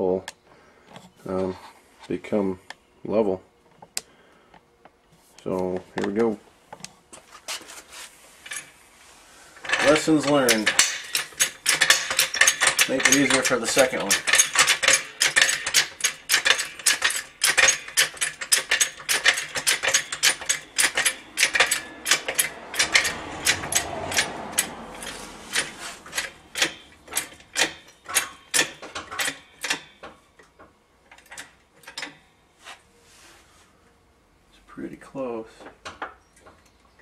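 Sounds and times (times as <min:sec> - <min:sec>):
floor jack metallic clicks: 0:09.6 - 0:32.2.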